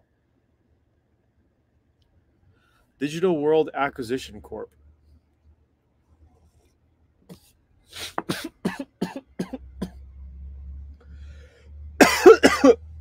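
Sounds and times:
man coughing: 8.0s - 10.0s, 12.0s - 12.8s.

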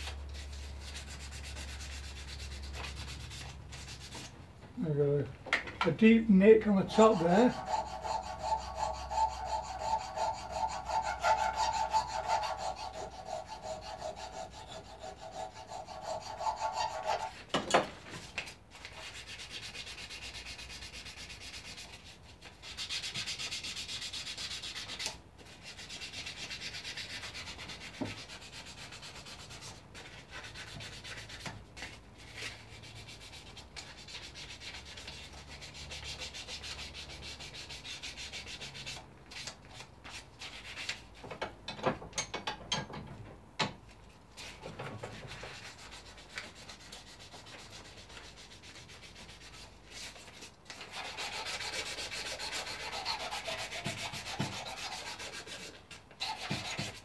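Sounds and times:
sandpaper scratching on horn: 0.0s - 4.3s, 6.3s - 17.4s, 18.8s - 39.0s, 45.2s - 57.0s.

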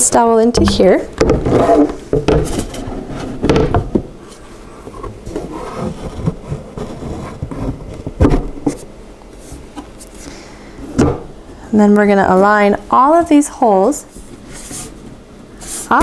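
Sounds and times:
sharp wooden knocks: 0.6s - 2.7s
wooden panels scraping and rubbing: 0.6s - 9.9s.

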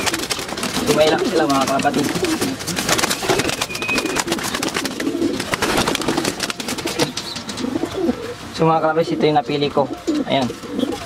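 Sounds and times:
clicks and rustles of birds moving: 0.0s - 8.4s
pigeons cooing: 0.0s - 11.0s.

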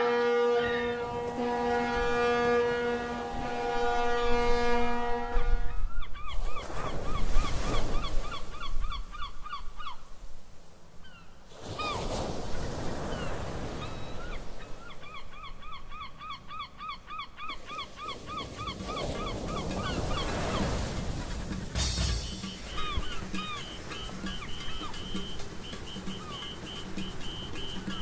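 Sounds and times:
bird chirping rapidly: 18.1s - 28.0s.

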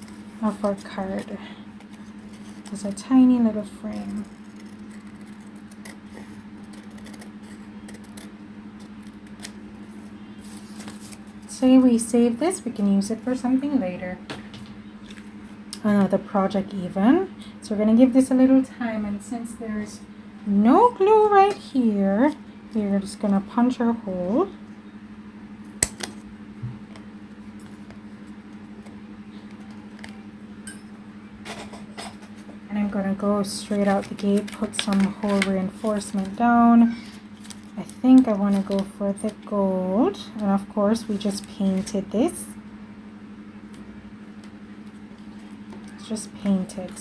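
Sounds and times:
steady low hum: 0.0s - 47.0s
scissors snipping paper: 3.8s - 9.6s, 33.7s - 36.4s.

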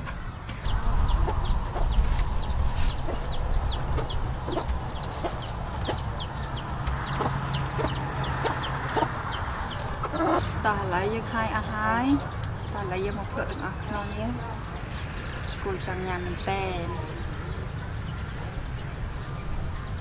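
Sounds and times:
chickens clucking: 0.0s - 15.0s
chicks peeping: 0.0s - 20.0s
steady low rumble: 0.0s - 20.0s.

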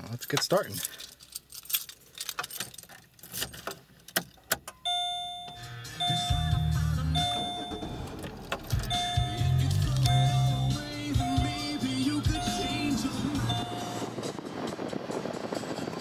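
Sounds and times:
keys jingling in ignition: 0.0s - 14.9s
music from car radio: 4.7s - 16.0s
car engine starting: 4.9s - 16.0s.

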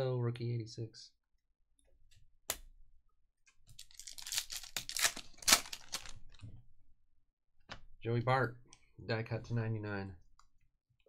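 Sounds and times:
foil wrapper crinkling: 3.8s - 6.4s.

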